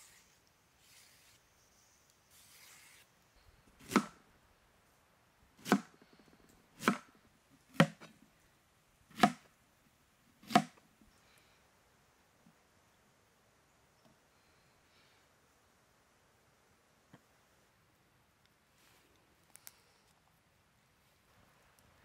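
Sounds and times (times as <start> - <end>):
blade chopping strikes: 3.8 - 4.2, 5.6 - 5.9, 6.8 - 7.1.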